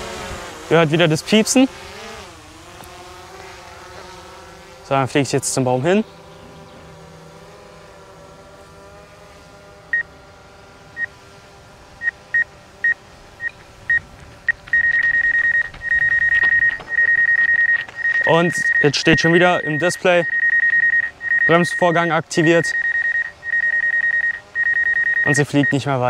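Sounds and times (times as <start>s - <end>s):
drone propellers humming: 0.0s - 26.0s
high warning beeps: 12.0s - 25.9s.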